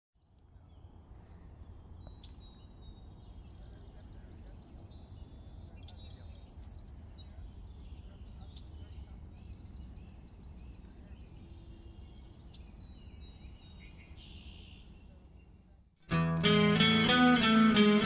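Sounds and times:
small birds chirping: 0.2 - 18.0.

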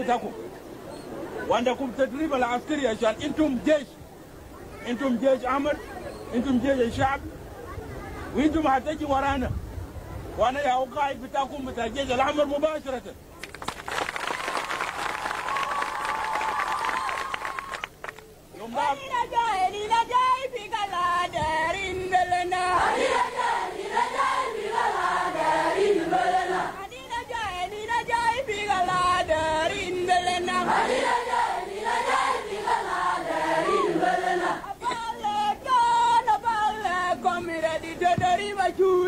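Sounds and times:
crowd singing in chorus: 21.7 - 26.8, 27.7 - 38.6.

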